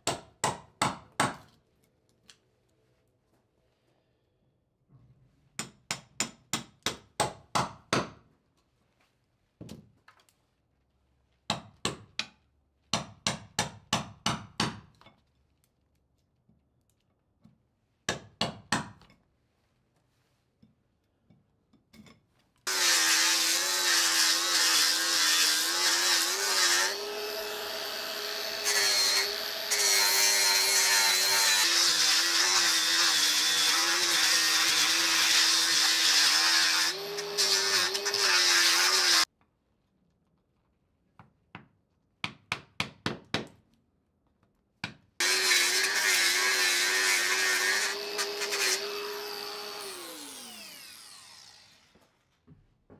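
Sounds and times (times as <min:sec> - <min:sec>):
angle grinder grinding wood: 0:22.7 - 0:39.3, 0:45.2 - 0:52.1.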